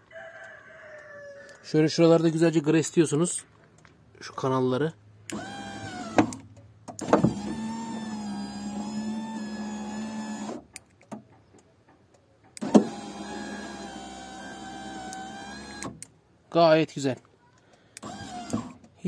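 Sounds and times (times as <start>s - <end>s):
electric window motor humming: 5.3s - 6.4s, 7.0s - 10.6s, 12.6s - 16.0s, 18.0s - 18.8s.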